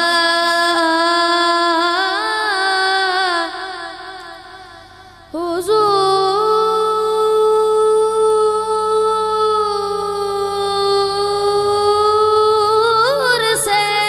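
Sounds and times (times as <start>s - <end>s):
boy singing into a microphone: 0.0s - 14.0s.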